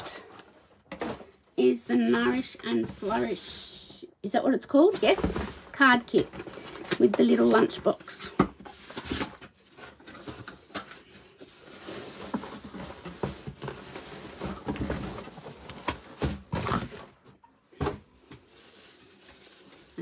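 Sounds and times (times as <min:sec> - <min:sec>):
cardboard rustling: 0:00.0 - 0:03.8, 0:04.7 - 0:17.4
plastic wrapping crinkling: 0:08.7 - 0:17.0, 0:18.4 - 0:20.0.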